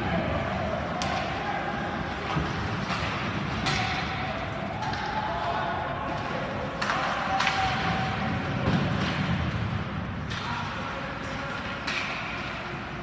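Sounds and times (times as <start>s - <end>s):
hockey sticks and puck knocking: 2.1s - 5.2s, 6.1s - 12.8s.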